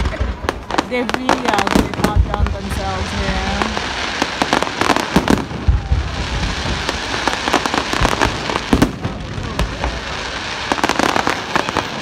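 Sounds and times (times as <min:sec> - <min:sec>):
fireworks crackle: 0:00.0 - 0:12.0.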